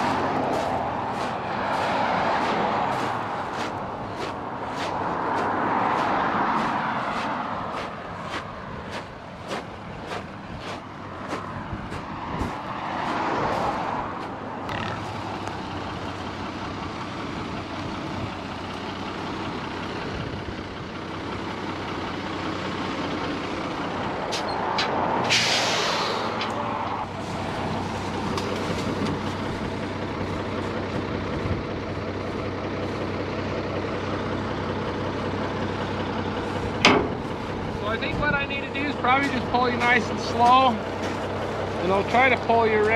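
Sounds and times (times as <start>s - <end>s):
truck engine running: 0.0s - 42.9s
tyres on gravel: 0.0s - 42.9s
air brake hiss: 25.3s - 26.4s.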